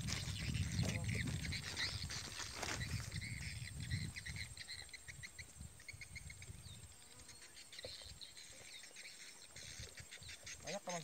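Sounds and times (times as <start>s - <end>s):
wind rumble on microphone: 0.0s - 7.0s.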